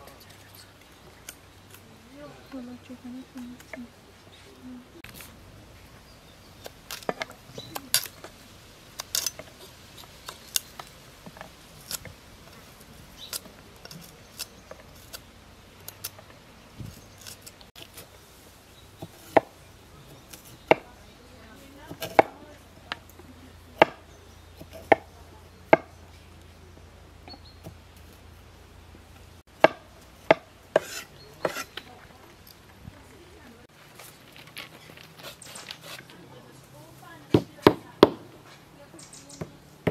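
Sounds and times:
knife chopping on wooden board: 0:21.9 - 0:22.4, 0:29.6 - 0:31.7.

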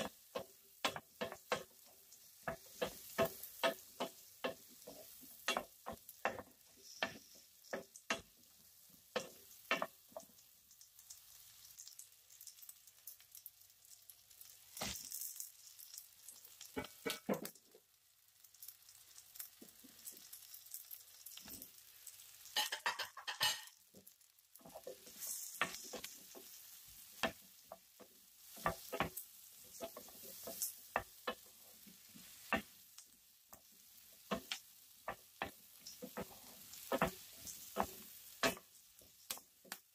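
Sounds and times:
carrots clattering into pan: 0:00.0 - 0:08.4, 0:11.1 - 0:17.8, 0:18.5 - 0:32.9, 0:33.5 - 0:39.9
wooden spatula knocking pan: 0:00.0 - 0:08.4, 0:09.1 - 0:10.4, 0:22.6 - 0:32.8, 0:34.1 - 0:39.8
vegetables sizzling in oil: 0:00.0 - 0:39.9.

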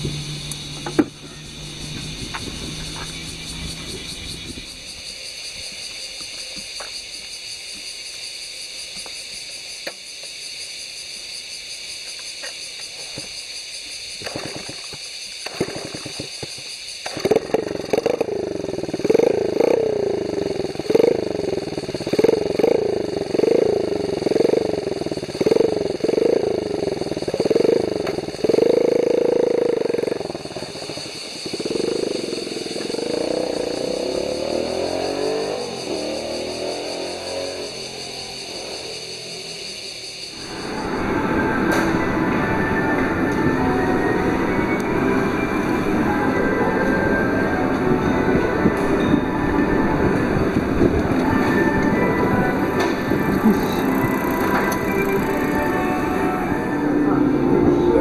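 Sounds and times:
small engine revving: 0:00.0 - 0:06.7, 0:14.2 - 0:58.0
engine knocks: 0:00.0 - 0:07.1, 0:14.2 - 0:33.8.

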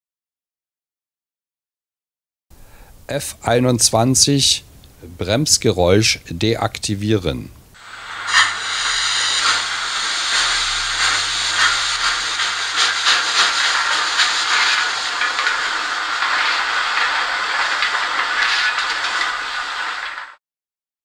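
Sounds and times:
steam hiss through small loudspeaker: 0:07.8 - 0:20.4.

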